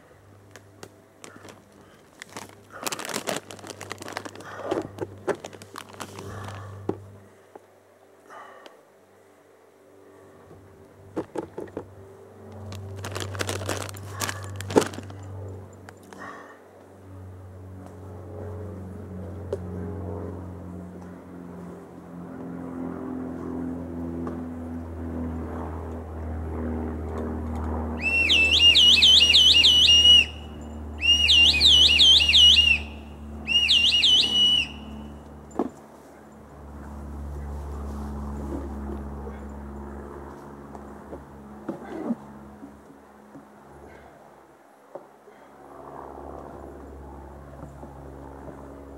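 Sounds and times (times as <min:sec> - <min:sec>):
low steady hum: 0:00.0 - 0:33.6
plastic snack bag crinkling: 0:01.2 - 0:06.7, 0:12.6 - 0:15.2
loud warbling whistle: 0:28.0 - 0:35.2.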